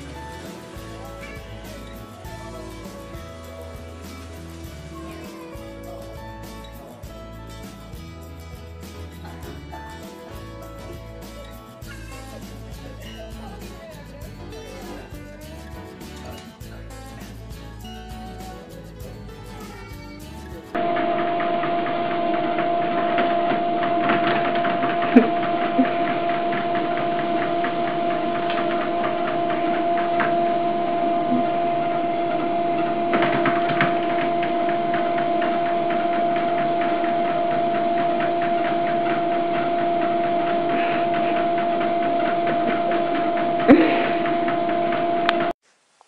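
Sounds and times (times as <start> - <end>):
treadmill motor whine: 20.8 - 45.6.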